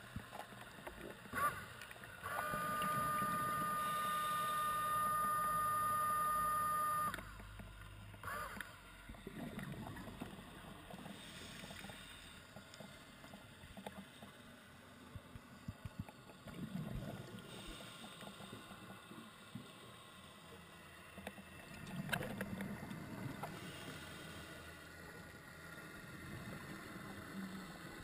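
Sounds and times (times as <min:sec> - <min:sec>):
underwater scooter motor whine: 0:01.0 - 0:11.0.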